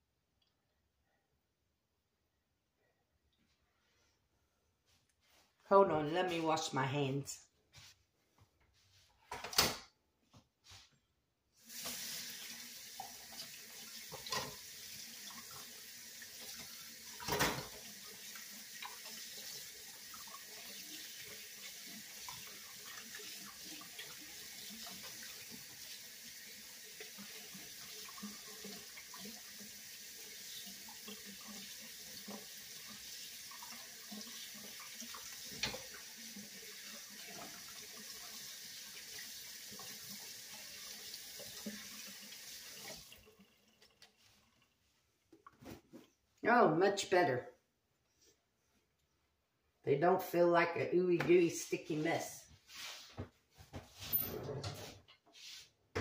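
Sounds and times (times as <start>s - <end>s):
tap running into metal sink: 35.5s - 36.0s.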